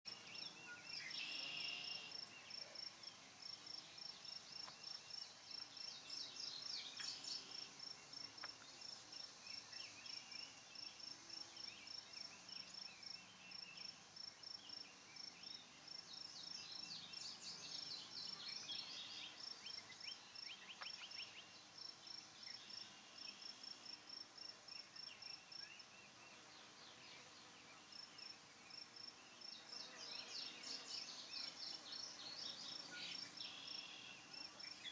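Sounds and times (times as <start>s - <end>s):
insect chirping: 0.1s - 26.4s, 27.0s - 34.9s
bird chirps: 29.2s - 34.9s.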